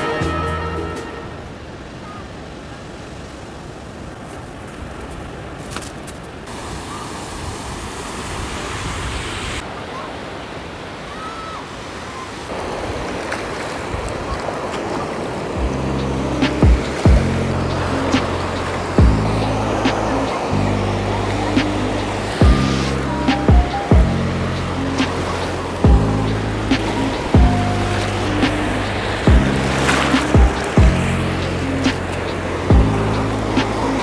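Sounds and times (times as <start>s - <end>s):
music: 0.0s - 1.4s, 15.6s - 34.0s
ocean surf on shore: 0.0s - 34.0s.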